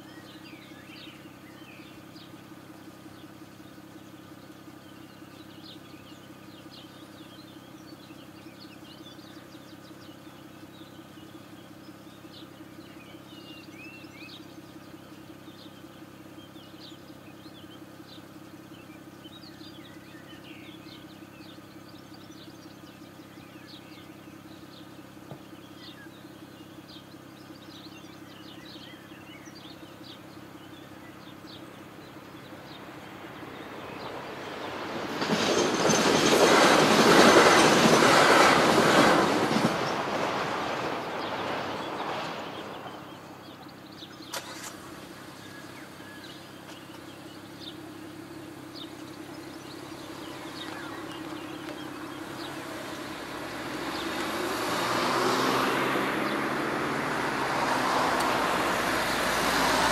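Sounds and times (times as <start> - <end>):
birds chirping: 0.0 - 59.9
car engine idling: 0.0 - 59.9
approaching train rushing: 32.3 - 43.7, 49.2 - 59.9.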